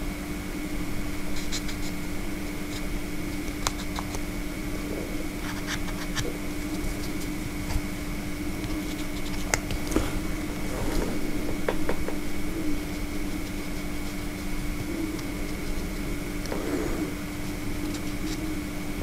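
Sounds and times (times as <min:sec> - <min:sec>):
steady motor hum: 0:00.0 - 0:19.0
marker pen scratching on metal: 0:01.3 - 0:02.0.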